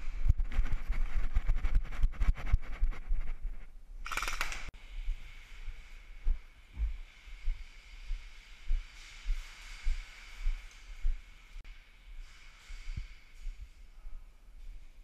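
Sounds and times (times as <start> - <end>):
sharp click: 4.0 - 4.7.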